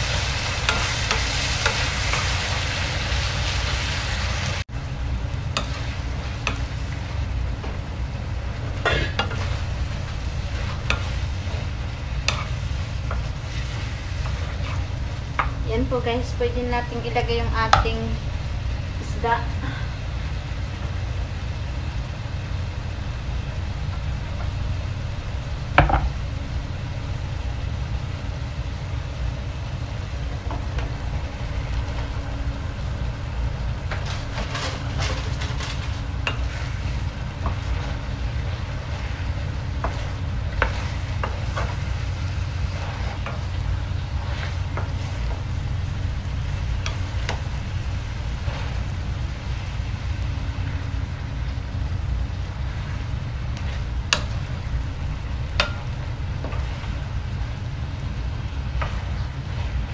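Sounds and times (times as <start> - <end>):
spatula scraping wok: 0.0 - 4.6, 5.4 - 17.5, 33.4 - 51.3, 52.2 - 59.9
food sizzling in a wok: 0.0 - 59.9.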